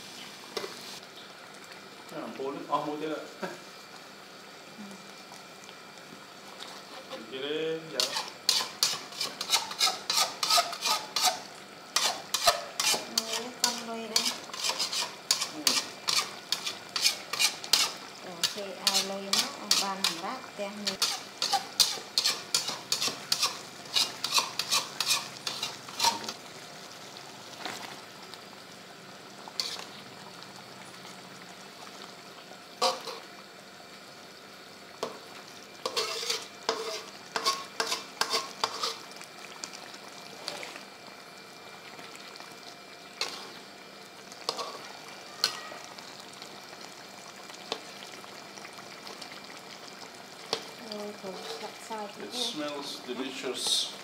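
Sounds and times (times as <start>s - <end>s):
sauce sizzling: 0.0s - 54.0s
metal spatula scraping a wok: 8.0s - 11.4s, 12.0s - 20.1s, 20.9s - 26.4s, 29.6s - 30.0s, 32.8s - 33.3s, 35.8s - 39.0s, 43.2s - 43.6s, 44.5s - 45.6s, 50.5s - 51.7s.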